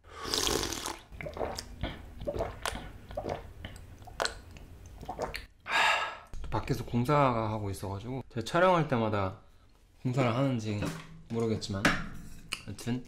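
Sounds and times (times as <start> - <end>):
wet lip and tongue smacks: 3.6 - 5.5.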